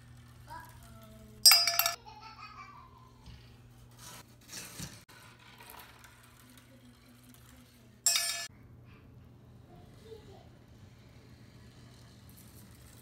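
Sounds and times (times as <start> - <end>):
marble clinking into metal can: 1.4 - 2.0, 5.6 - 8.5.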